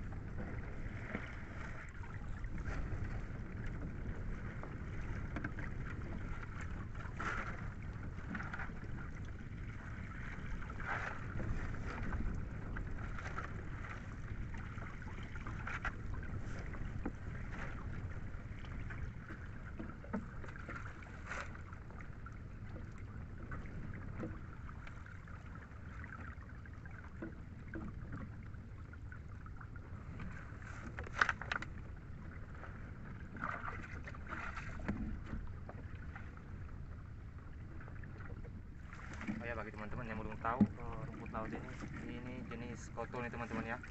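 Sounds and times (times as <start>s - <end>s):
wind on microphone: 0.0s - 31.0s
water around a boat: 0.0s - 43.9s
seaweed splashing and rustling: 33.4s - 35.2s, 38.2s - 42.3s.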